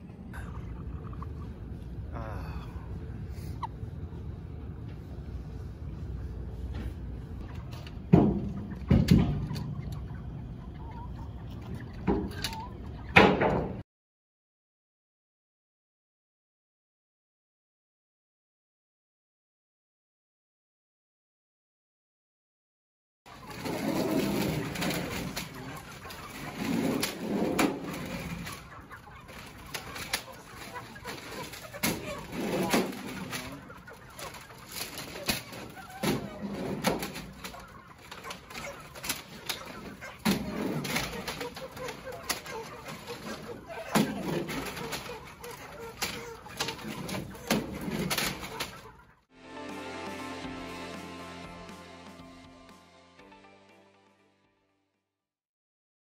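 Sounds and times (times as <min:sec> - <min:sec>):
chickens squawking and clucking: 0:00.0 - 0:04.8, 0:07.4 - 0:13.8, 0:23.3 - 0:49.2
low steady rumble: 0:00.0 - 0:07.5
poultry crates knocking and clattering: 0:07.6 - 0:10.2, 0:11.6 - 0:13.8, 0:23.3 - 0:49.1.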